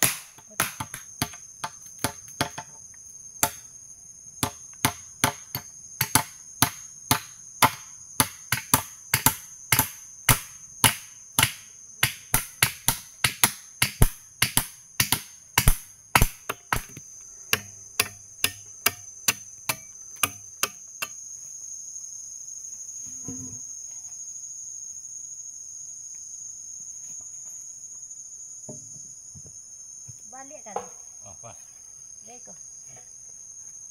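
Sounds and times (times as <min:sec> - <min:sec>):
insects droning: 0:00.0 - 0:33.9
hand tool striking: 0:07.1 - 0:21.2.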